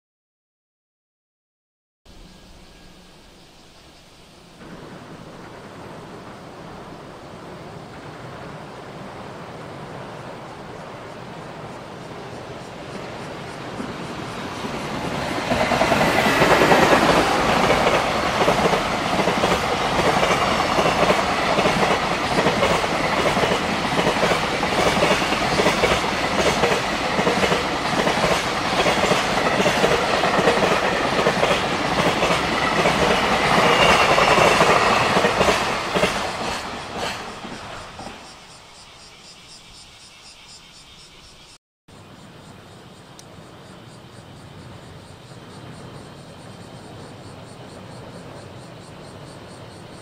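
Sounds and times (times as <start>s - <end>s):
wheels clickety-clack on rail joints: 4.6s - 38.4s
freight train rumble: 4.6s - 38.6s, 43.2s - 50.0s.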